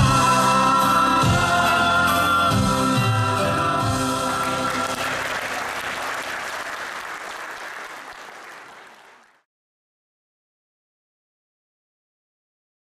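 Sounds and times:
audience applauding: 3.8s - 9.5s.

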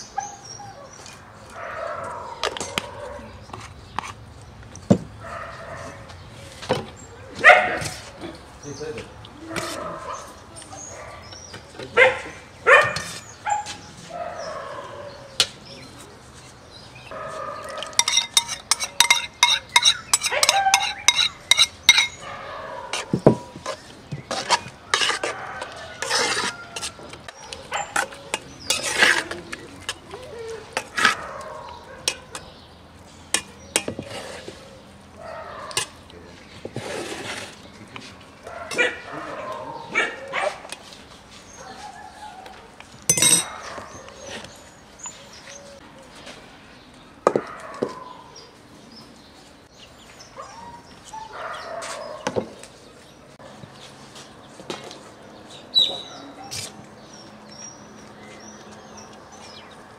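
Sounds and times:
metal skimmer clinking on metal: 17.9s - 22.2s, 43.1s - 43.6s.

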